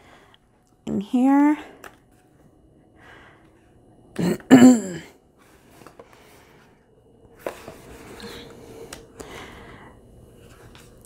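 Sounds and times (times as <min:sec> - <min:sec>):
person clearing her throat: 0:04.2 - 0:05.2
sketchbook pages rustling: 0:07.4 - 0:09.0.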